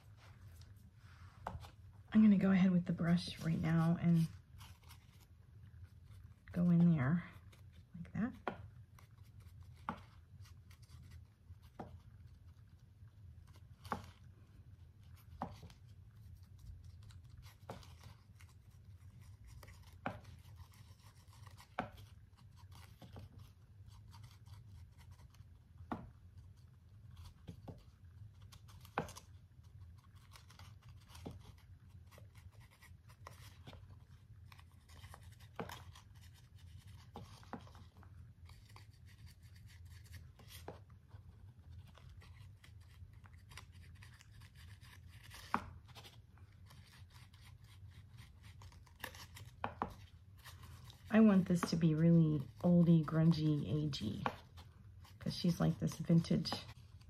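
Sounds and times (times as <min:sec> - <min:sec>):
brush scratching: 0:00.0 - 0:57.0
low steady hum: 0:00.0 - 0:57.0
brush tapping: 0:42.8 - 0:57.0.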